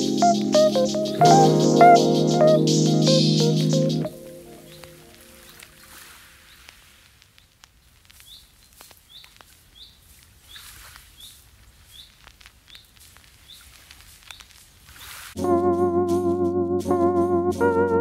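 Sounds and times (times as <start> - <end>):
guitar music: 0.0 - 5.4, 15.4 - 18.0
small bird chirping: 8.2 - 15.2.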